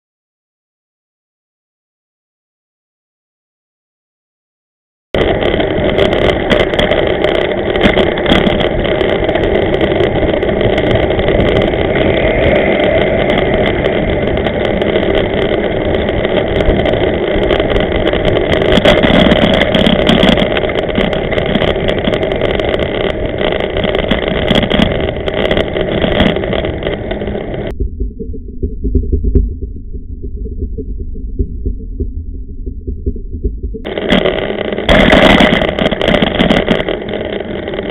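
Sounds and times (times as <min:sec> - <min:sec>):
bicycle clicks and rattles: 0:05.2 - 0:27.7, 0:33.8 - 0:37.9
tyres rumbling on loose stones: 0:05.2 - 0:27.7, 0:33.8 - 0:37.9
bicycle riding rush: 0:05.2 - 0:27.8, 0:33.4 - 0:37.9.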